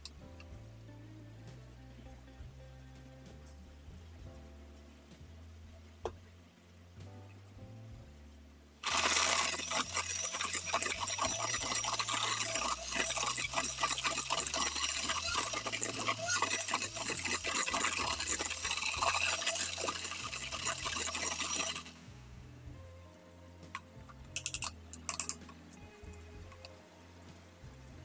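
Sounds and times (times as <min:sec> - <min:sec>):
electric mixer motor whir: 0:08.8 - 0:21.9
beaters rattling against metal bowl: 0:08.8 - 0:22.0, 0:24.4 - 0:25.6.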